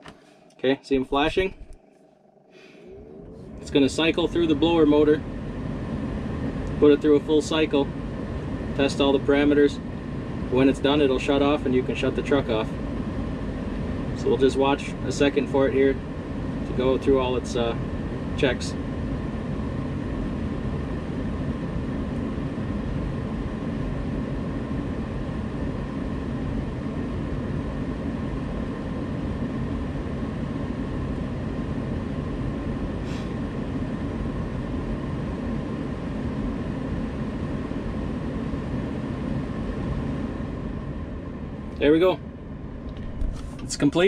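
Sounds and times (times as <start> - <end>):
blower motor running: 0.0 - 44.0
air rushing through ducts: 2.5 - 19.8, 32.9 - 33.6, 37.4 - 44.0.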